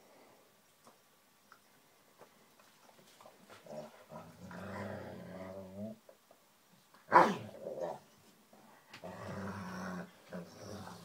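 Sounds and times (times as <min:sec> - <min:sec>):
rustling and mouthing: 0:00.7 - 0:11.0
dog growling: 0:03.6 - 0:06.0, 0:09.0 - 0:11.0
dog barking sharply: 0:07.1 - 0:07.4.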